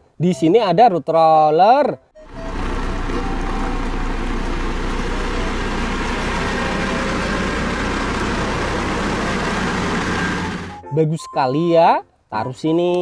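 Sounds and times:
deep hum: 2.2 - 10.8
road roller diesel engine running: 2.2 - 10.8.

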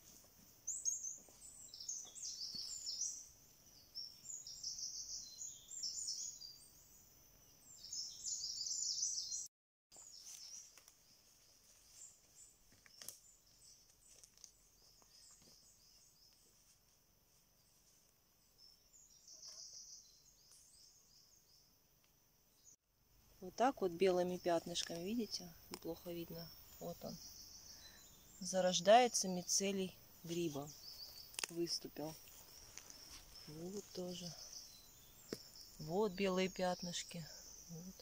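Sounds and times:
footsteps on forest floor: 0.0 - 3.0, 9.9 - 18.2, 30.2 - 35.8
songbirds singing: 0.0 - 16.6, 18.4 - 38.0.

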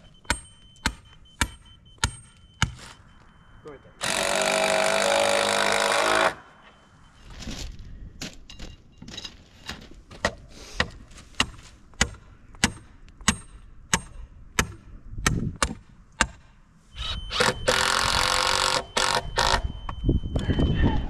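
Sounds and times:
power drill running: 4.0 - 6.4, 17.0 - 19.6.

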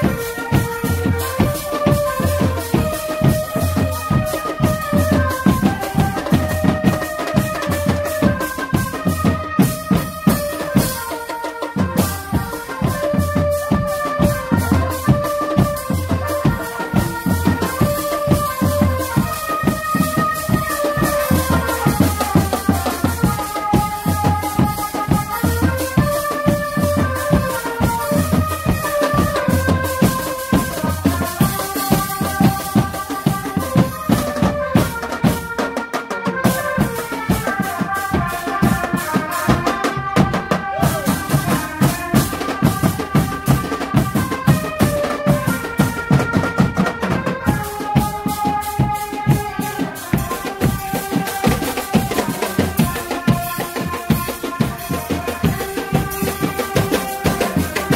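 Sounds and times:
snare and cymbal strokes: 0.0 - 35.6.

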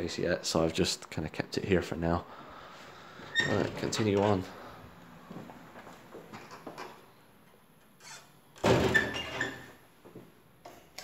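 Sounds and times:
interior door shutting with a thud: 8.6 - 9.6.

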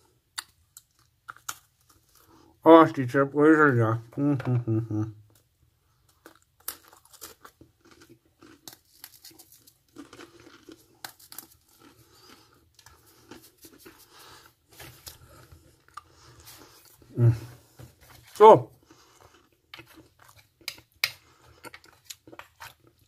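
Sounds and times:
dry crackers crumbling: 6.1 - 15.4.

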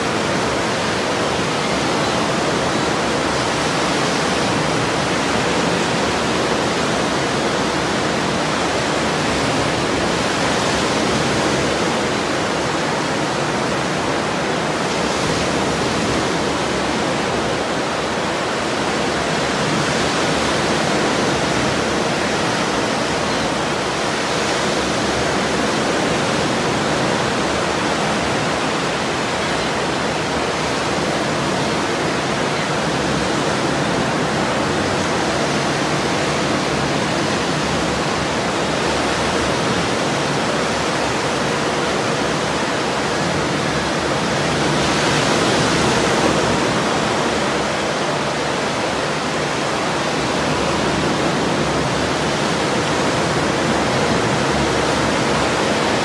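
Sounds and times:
ocean waves breaking: 0.0 - 56.0.

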